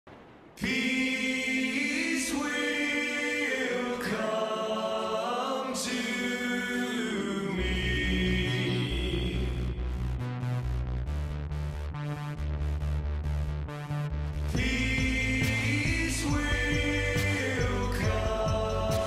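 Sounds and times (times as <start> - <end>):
choral voices singing: 0.6 - 9.9, 14.5 - 19.0
pulsing low bass: 7.6 - 19.0.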